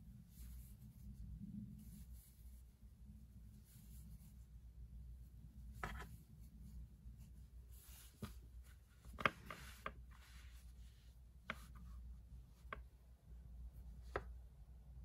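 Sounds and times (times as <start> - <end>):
hands rubbing yarn: 0.0 - 13.0
low steady hum: 0.0 - 15.0
scrapes and taps on wood: 5.8 - 6.2, 9.0 - 10.2, 12.6 - 12.9, 14.0 - 14.3.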